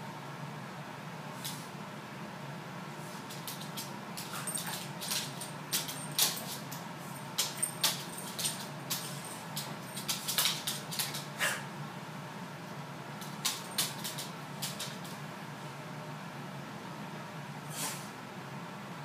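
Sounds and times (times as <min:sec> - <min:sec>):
animals scuffling on wooden floor: 0:03.1 - 0:11.3, 0:13.2 - 0:15.2
claws clicking on floor: 0:03.3 - 0:11.3, 0:13.2 - 0:15.2.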